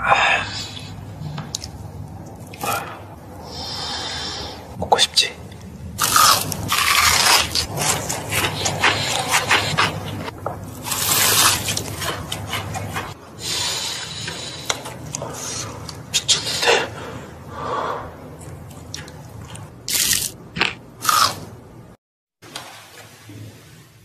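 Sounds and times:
crunchy chicken being chewed: 6.0s - 13.2s.

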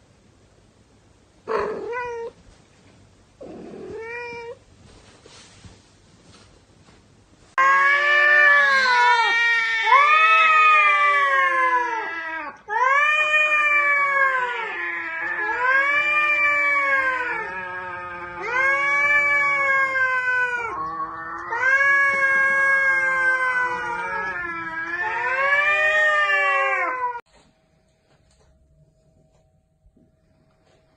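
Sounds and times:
cat yowling: 1.5s - 2.4s, 7.6s - 27.2s.

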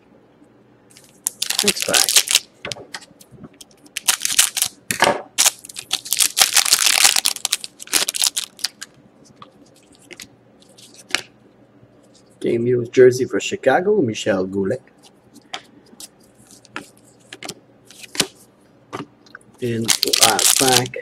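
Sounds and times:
foil wrapper crinkling and tearing: 1.0s - 2.5s, 3.9s - 4.8s, 5.4s - 8.9s, 19.6s - 21.0s.

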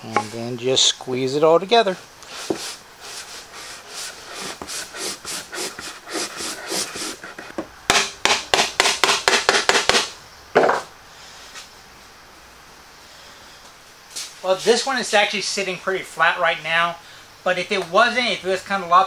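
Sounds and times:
wood knocking and rubbing: 0.1s - 0.4s, 2.4s - 2.8s.

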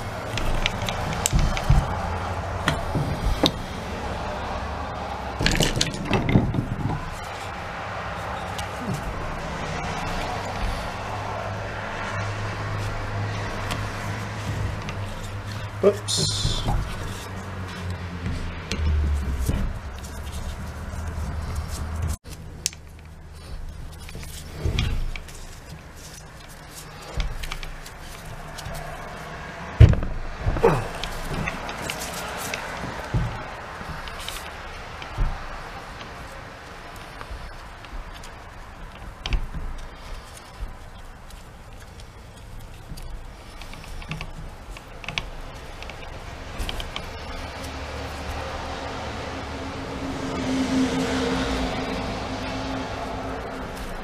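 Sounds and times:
clicks and knocks of handling tool: 0.0s - 3.6s
hands handling plastic parts: 0.0s - 49.0s.

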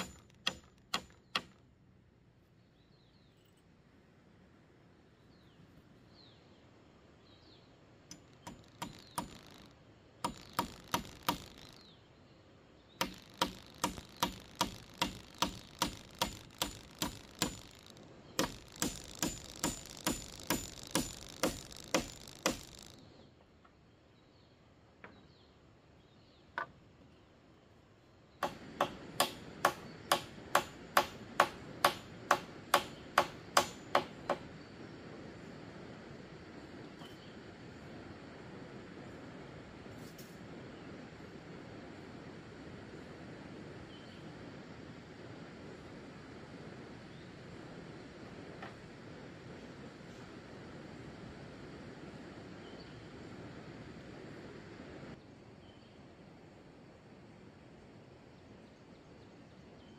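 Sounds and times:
hand tool striking bamboo: 0.0s - 1.6s, 8.1s - 11.8s, 13.0s - 23.0s, 28.4s - 34.4s.

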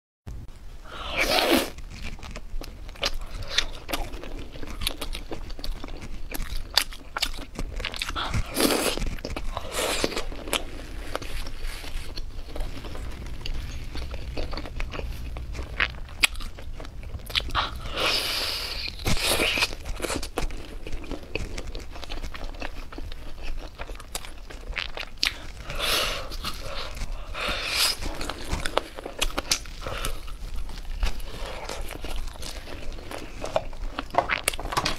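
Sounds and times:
crunching bites of food: 1.0s - 34.9s.

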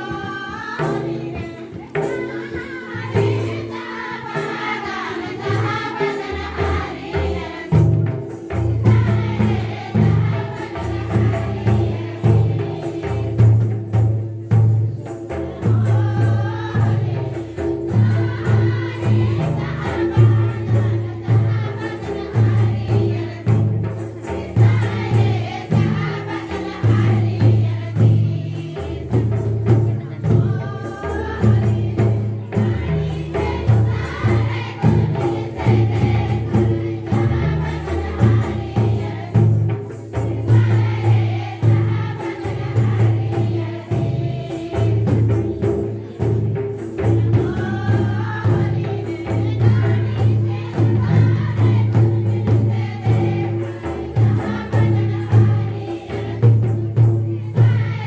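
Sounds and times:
group singing folk song: 0.0s - 58.0s
hand drum beat: 0.0s - 58.0s.

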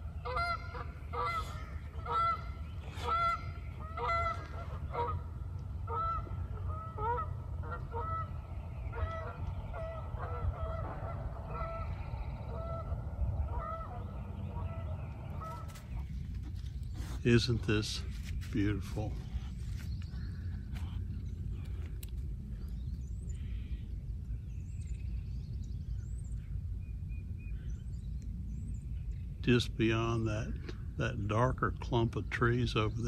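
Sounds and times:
geese honking in flight: 0.2s - 16.0s.

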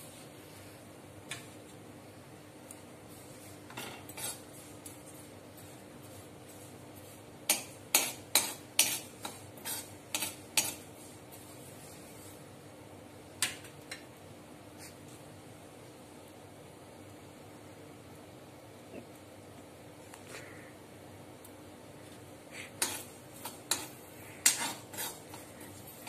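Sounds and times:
spatula scraping metal pan: 3.7s - 4.5s, 7.5s - 10.8s, 22.8s - 25.8s.

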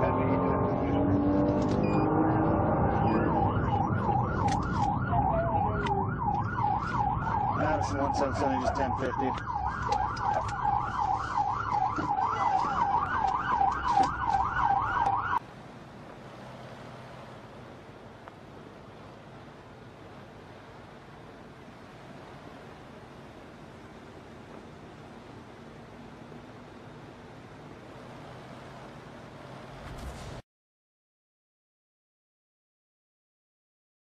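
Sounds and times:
police siren yelping: 0.0s - 15.4s
vehicle engine and road noise: 0.0s - 30.4s.

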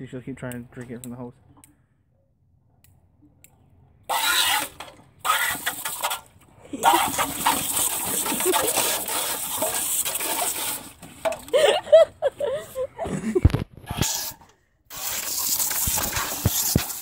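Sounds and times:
hose nozzle spraying water: 4.1s - 11.5s, 13.9s - 17.0s.

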